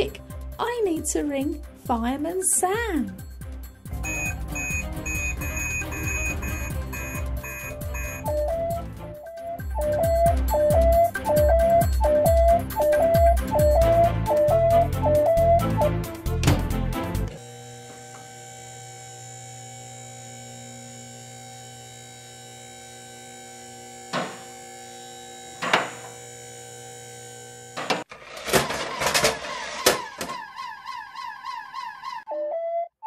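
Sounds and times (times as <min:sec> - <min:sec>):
toy siren warbling: 0:04.0 - 0:15.9, 0:29.5 - 0:33.0
electrical hum: 0:17.3 - 0:28.1.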